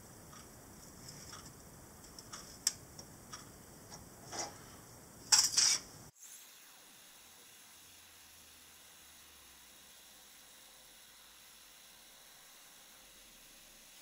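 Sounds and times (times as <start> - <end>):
faint hiss: 0.0 - 14.0
metal-on-metal scrapes: 4.2 - 4.7, 5.3 - 5.9.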